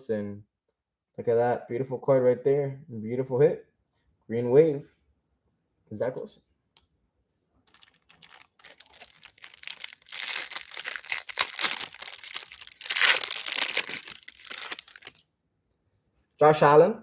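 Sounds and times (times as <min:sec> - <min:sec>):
plastic wrapper crinkling and tearing: 0:07.7 - 0:15.2.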